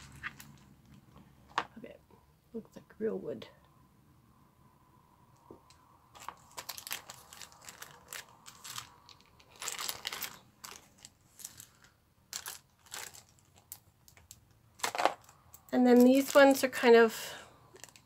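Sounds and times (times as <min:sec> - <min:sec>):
plastic bag crinkling: 0:00.0 - 0:01.1, 0:06.1 - 0:16.8, 0:17.7 - 0:18.0.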